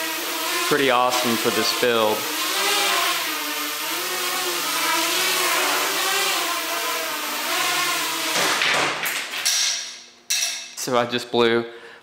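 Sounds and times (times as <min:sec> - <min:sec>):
quadcopter motors whining: 0:00.0 - 0:08.6.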